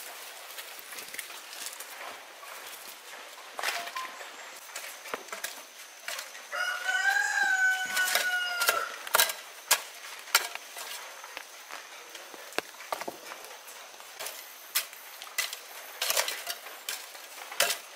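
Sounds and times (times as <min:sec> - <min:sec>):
rooster crowing: 0:06.4 - 0:09.1.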